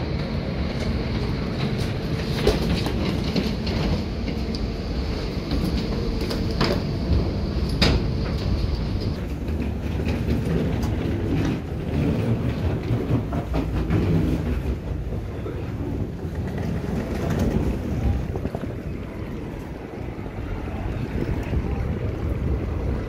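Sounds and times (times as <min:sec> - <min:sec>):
footsteps of walking people: 0:00.0 - 0:23.0
wheeled suitcases rattling: 0:00.8 - 0:23.0
low rumble: 0:14.5 - 0:23.0.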